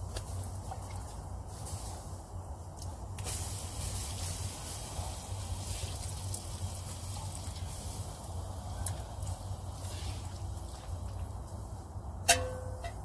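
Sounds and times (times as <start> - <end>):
water hissing on hot stove: 2.8 - 12.2.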